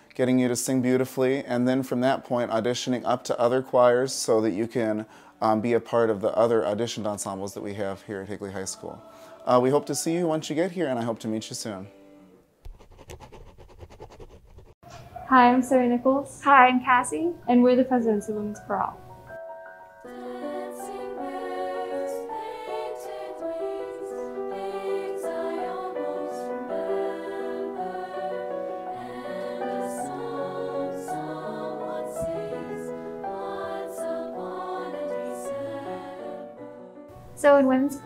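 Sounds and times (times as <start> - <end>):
women's choir singing in harmony: 8.2 - 10.8, 20.0 - 38.0
grand piano accompaniment: 17.4 - 38.0.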